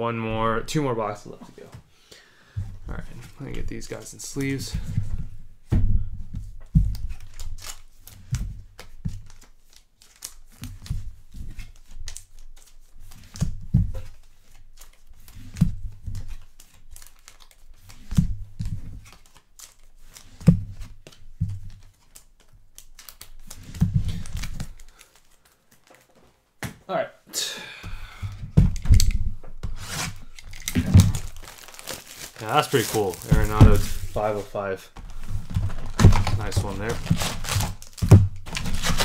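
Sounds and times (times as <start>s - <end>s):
plastic card sleeves crinkling: 8.8s - 13.4s, 14.1s - 26.4s, 29.8s - 39.0s.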